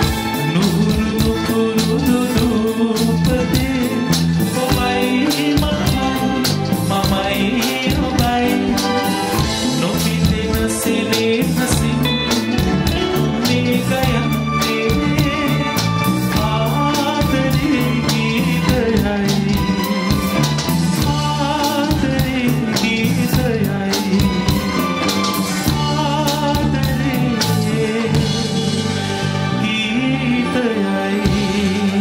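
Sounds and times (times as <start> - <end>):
drum kit beat: 0.0 - 30.6, 31.2 - 32.0
keyboards: 0.0 - 32.0
wavering lead melody: 0.0 - 32.0.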